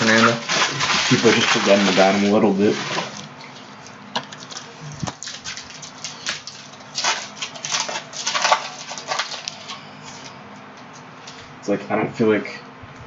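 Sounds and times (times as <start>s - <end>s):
foil wrapper tearing and crinkling: 0.0s - 9.8s.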